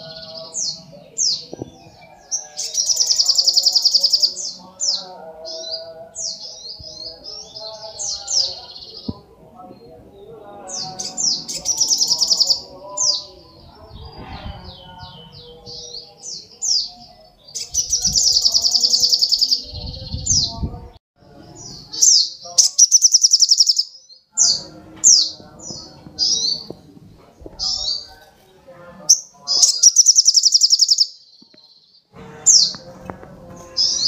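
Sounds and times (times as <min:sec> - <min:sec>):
sharp downslurred bird chirps: 0:21.9 - 0:25.4, 0:29.1 - 0:31.9.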